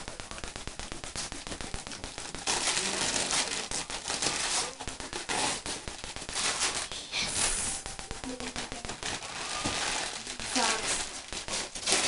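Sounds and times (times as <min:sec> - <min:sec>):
wrapping paper crinkling and tearing: 0:00.0 - 0:12.0.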